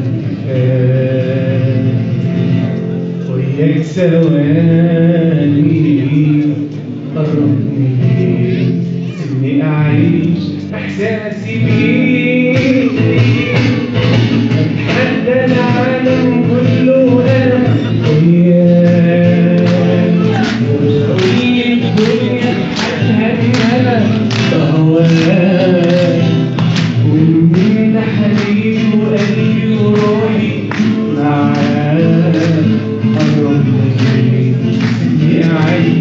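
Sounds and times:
man singing into microphone: 0.0s - 36.0s
strummed guitar: 0.0s - 36.0s.

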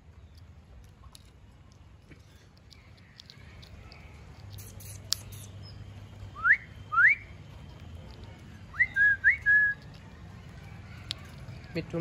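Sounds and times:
rising whistles: 6.4s - 7.3s, 8.7s - 9.8s.

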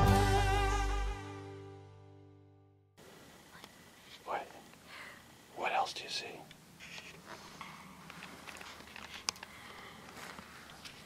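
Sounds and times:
instrumental music: 0.0s - 2.7s.

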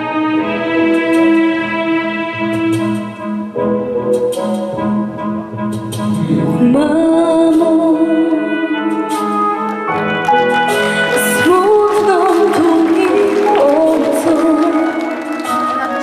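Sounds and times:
instrumental backing music: 0.0s - 16.0s
girl singing into a microphone: 6.3s - 9.4s.

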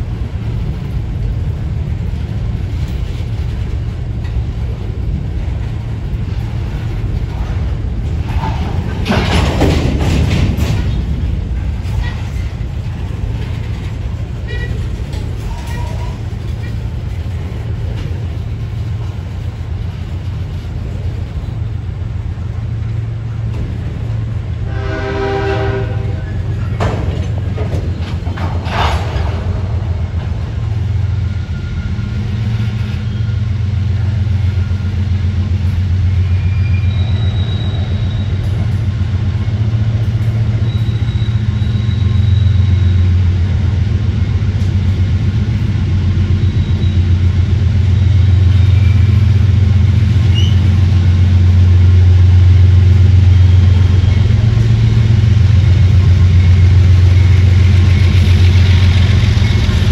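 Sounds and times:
diesel locomotive engine drone: 0.0s - 59.9s
train horn blast: 24.6s - 26.6s.

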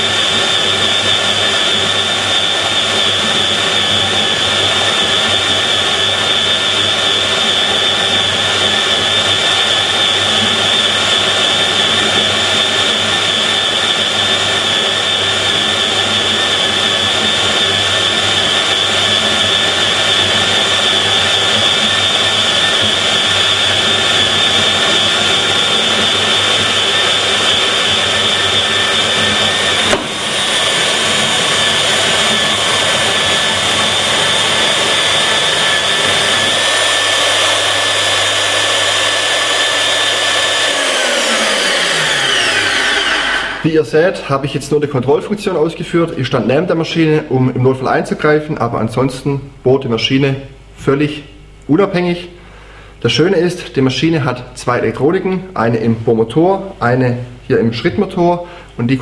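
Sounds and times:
drill cutting steel: 0.0s - 43.7s
drill motor whine: 0.0s - 43.8s.

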